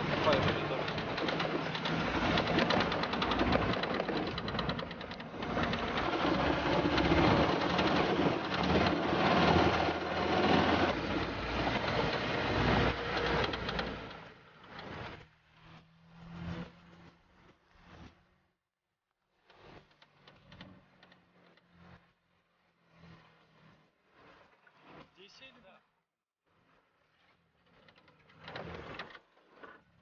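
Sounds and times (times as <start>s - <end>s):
off-road vehicle engine: 0.0s - 18.4s, 19.4s - 25.2s, 27.5s - 30.0s
road noise: 0.0s - 18.5s.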